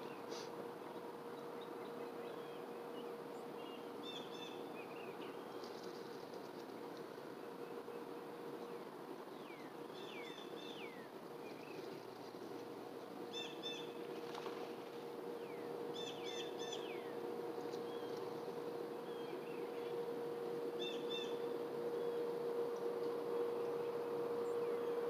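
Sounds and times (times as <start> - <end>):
steady low hum: 0.0 - 25.0
birds chirping: 7.6 - 25.0
birds whistling: 9.4 - 11.9, 13.3 - 14.0, 15.4 - 18.4, 20.7 - 22.3.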